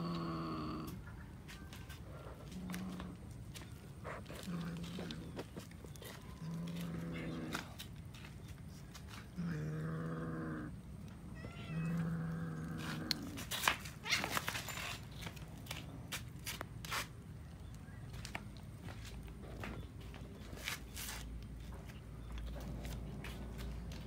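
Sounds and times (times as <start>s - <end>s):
cat growling: 0.0s - 1.0s, 4.0s - 5.6s, 6.3s - 7.8s, 9.3s - 10.8s, 11.4s - 13.5s
cat chewing and crunching bones: 1.5s - 24.0s
faint kitten meow: 11.4s - 12.5s.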